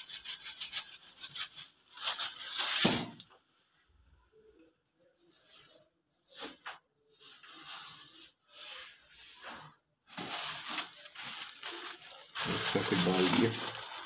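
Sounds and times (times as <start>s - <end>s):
plastic bag rustling and crinkling: 0.0s - 3.2s, 6.5s - 14.0s.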